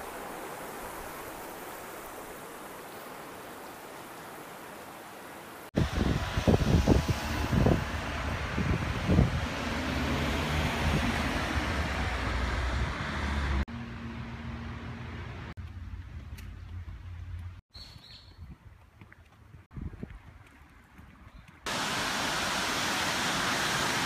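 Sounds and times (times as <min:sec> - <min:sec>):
car tyres passing: 0:05.9 - 0:15.9
wind thumps on microphone: 0:19.6 - 0:20.4.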